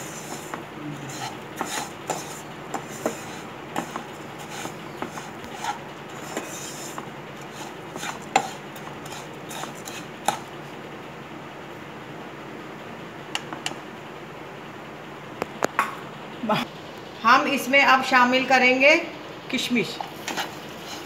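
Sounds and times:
metal spatula scraping a pan: 0.0s - 10.5s, 20.1s - 21.0s.

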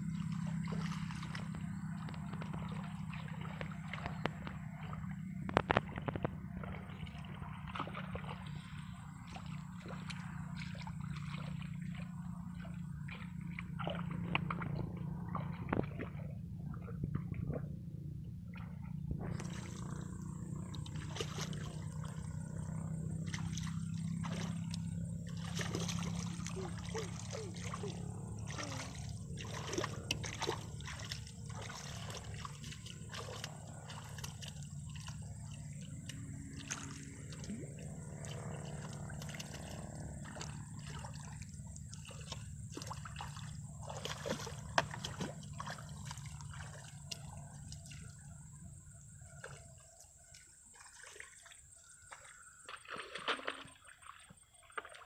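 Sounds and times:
steady low hum: 0.0s - 54.2s
mud squelching: 0.0s - 55.0s
muddy water sloshing: 0.0s - 55.0s
high whine: 18.6s - 30.4s.

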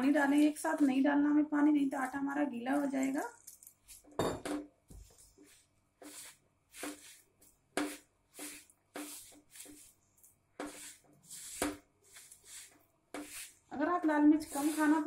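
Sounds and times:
hand mixing dough in metal bowl: 0.0s - 1.2s, 4.9s - 15.0s.

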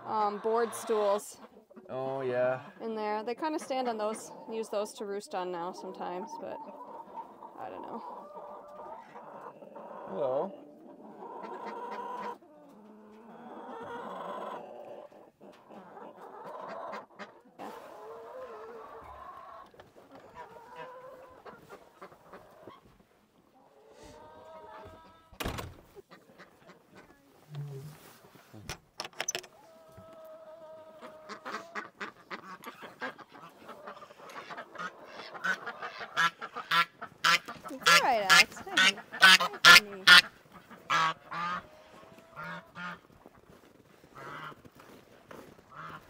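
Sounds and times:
chickens clucking and calling: 0.0s - 28.4s, 29.4s - 46.0s
ducks quacking: 0.1s - 12.4s, 30.7s - 43.1s, 44.1s - 44.7s, 45.7s - 46.0s
geese honking: 30.9s - 43.1s.

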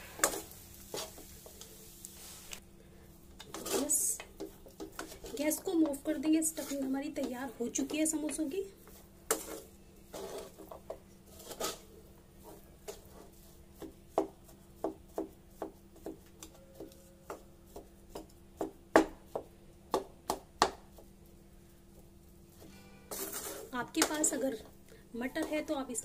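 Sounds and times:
faint steady hum: 0.0s - 26.0s
spoon knocking and scraping in pan: 3.4s - 11.8s.

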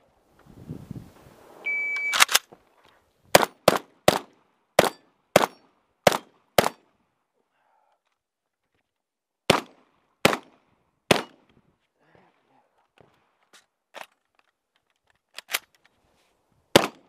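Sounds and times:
shotgun shots: 3.3s - 6.8s, 9.5s - 11.4s, 16.8s - 17.0s.

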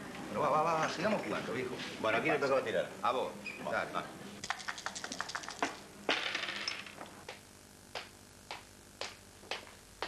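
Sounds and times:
game pieces clattering: 4.5s - 7.0s.

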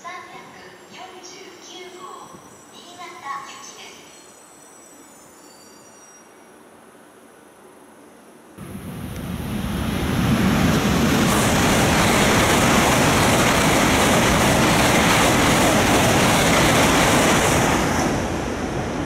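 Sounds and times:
high-speed train passing: 6.3s - 19.0s.

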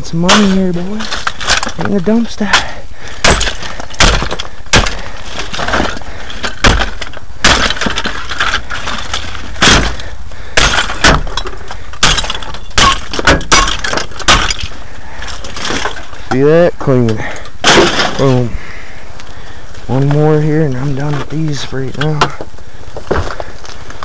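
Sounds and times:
glass breaking: 0.2s - 16.3s, 17.6s - 18.4s.

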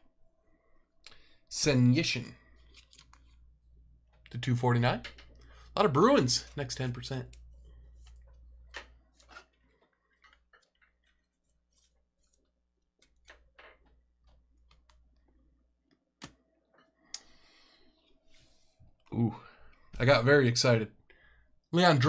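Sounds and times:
small clicks and taps: 13.0s - 17.3s.

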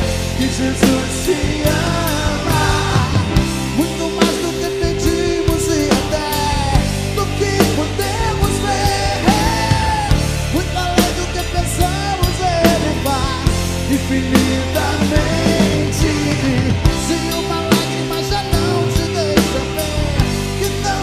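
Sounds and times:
bending lead melody: 0.0s - 21.0s
drum kit beat: 0.0s - 21.0s
sustained bass notes: 0.0s - 21.0s.

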